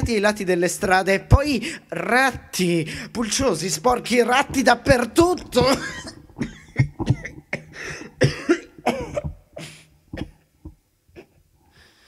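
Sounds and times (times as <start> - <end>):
man coughing: 5.6 - 10.4.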